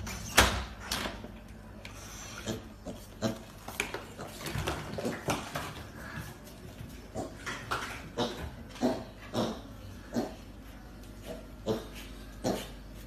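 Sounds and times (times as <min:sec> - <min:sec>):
hooves clicking on tiled floor: 0:00.9 - 0:09.6
piglets grunting: 0:07.0 - 0:13.0.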